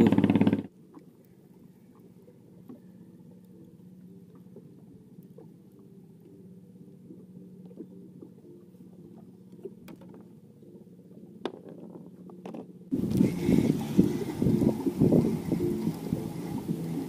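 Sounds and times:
wind buffeting microphone: 12.9 - 17.0.

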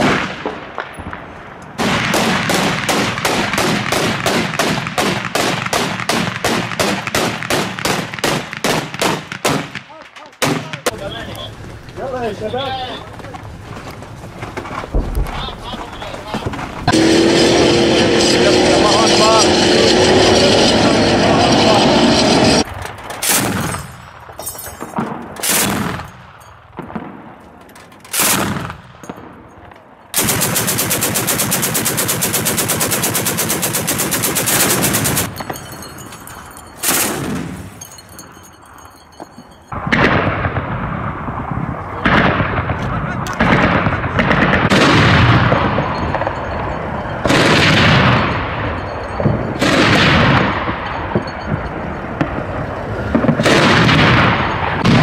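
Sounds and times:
heavy echoing blasts: 0.0 - 38.8, 39.7 - 55.0
single gunshots: 1.8 - 11.0
automatic gunfire burst: 30.2 - 35.6.

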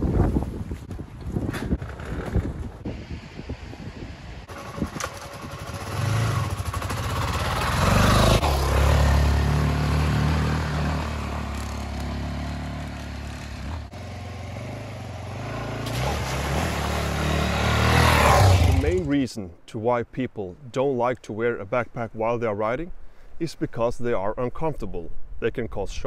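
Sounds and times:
motorcycle engine revving: 4.5 - 19.1.

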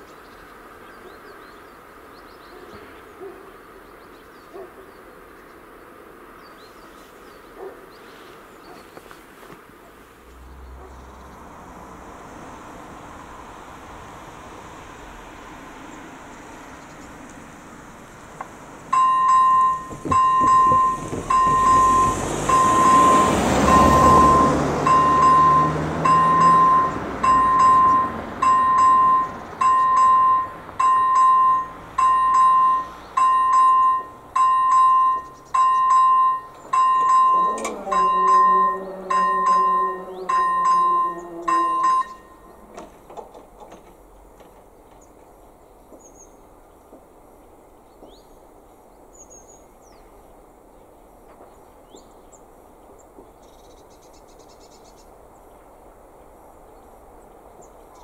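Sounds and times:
barrier motor humming: 10.1 - 44.6
crossing bell dinging: 18.7 - 43.1.

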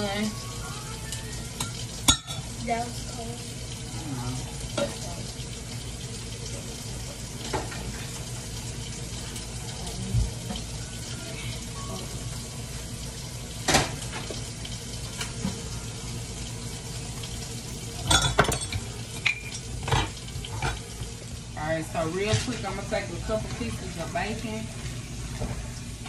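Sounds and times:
cookware knocks and clanks: 18.0 - 20.8.

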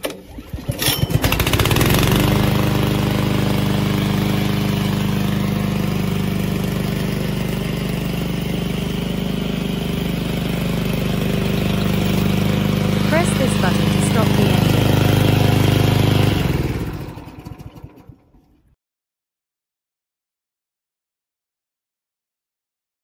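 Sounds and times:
recoil cord pull-start: 0.0 - 2.7, 14.6 - 18.7
petrol engine running: 1.0 - 18.6.

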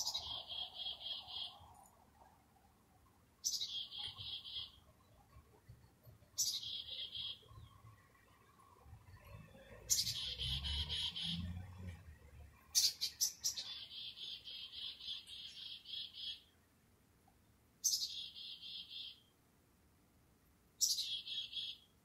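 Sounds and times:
chickadee calls: 0.0 - 1.7, 3.4 - 7.8, 9.2 - 11.6, 12.7 - 16.5, 17.8 - 19.3, 20.8 - 21.9.

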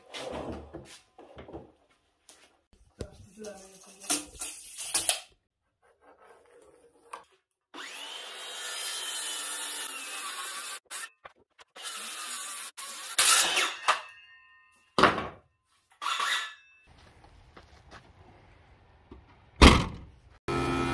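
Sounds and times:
circular saw cutting wood: 7.7 - 13.9, 20.5 - 20.9.

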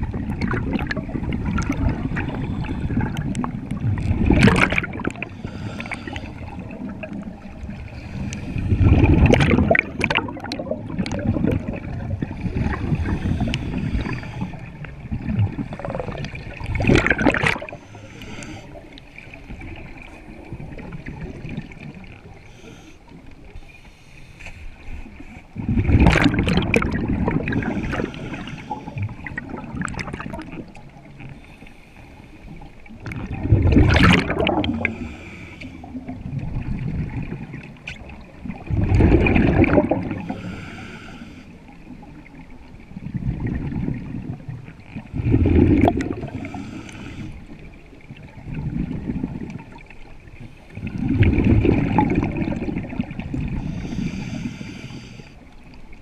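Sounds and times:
exhaled air bubbles gushing: 0.0 - 17.9, 18.7 - 22.4, 25.6 - 31.3, 32.8 - 40.5, 41.9 - 54.6
quiet bubbling: 0.0 - 56.0.

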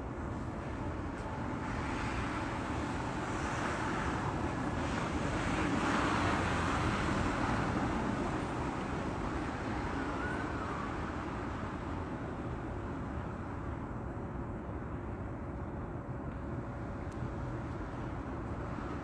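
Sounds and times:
traffic hiss and rumble: 0.0 - 19.0.

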